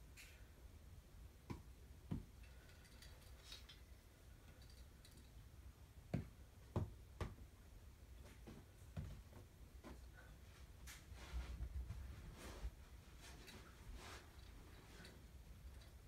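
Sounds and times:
faint rustle: 8.2s - 16.0s.

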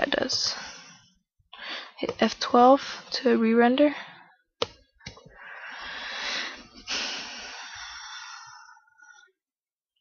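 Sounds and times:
person breathing into microphone: 5.3s - 9.3s.

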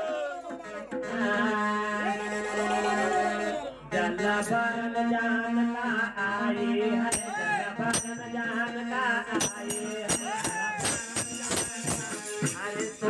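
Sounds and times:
men singing folk song together: 0.0s - 13.0s.

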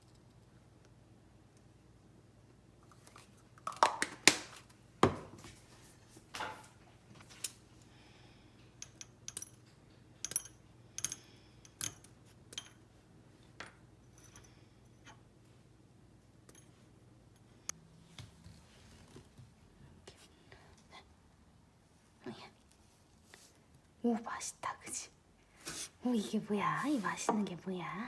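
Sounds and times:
pieces clicking into ceramic bowls: 8.8s - 12.8s.

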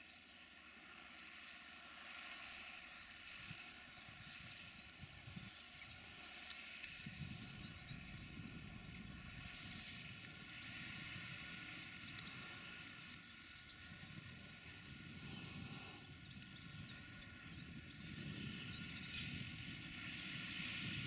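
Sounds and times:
small birds chirping: 0.0s - 21.0s
tractor diesel engine drone: 0.0s - 21.0s.

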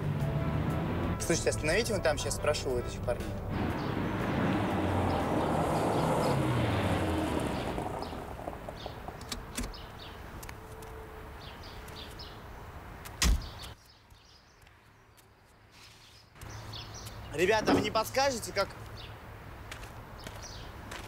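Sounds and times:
birds chirping: 0.0s - 21.0s
car rolling to a stop: 3.5s - 9.8s.

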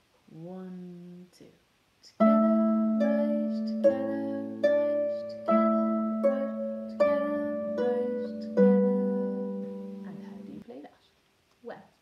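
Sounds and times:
harp plucked notes: 2.2s - 10.6s.

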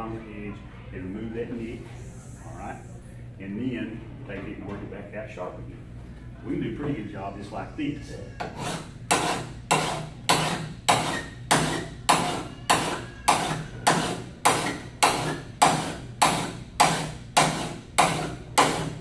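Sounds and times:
file rasping on metal blade: 8.4s - 19.0s.

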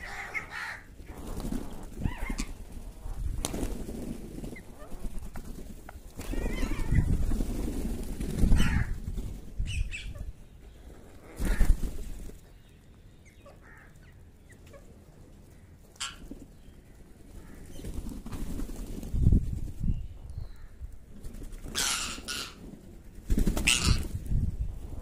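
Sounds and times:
birds flapping wings: 0.5s - 9.6s, 11.2s - 12.4s, 17.3s - 19.8s, 21.1s - 24.4s
harsh bird calls: 8.5s - 9.0s.

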